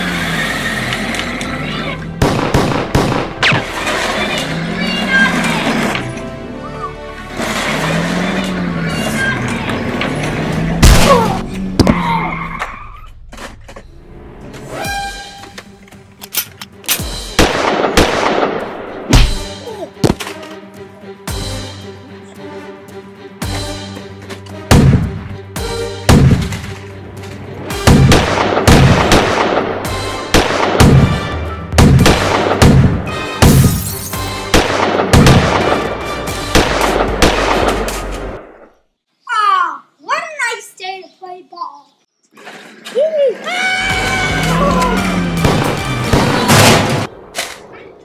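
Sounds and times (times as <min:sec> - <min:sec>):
background music: 0:00.5 - 0:12.3, 0:13.9 - 0:38.7, 0:43.6 - 0:47.5
gunshot sound effects: 0:02.2 - 0:03.7, 0:10.8 - 0:12.0, 0:17.4 - 0:20.2, 0:24.7 - 0:25.2, 0:26.1 - 0:26.6, 0:27.8 - 0:33.9, 0:34.5 - 0:35.9, 0:36.5 - 0:38.0, 0:45.4 - 0:47.1.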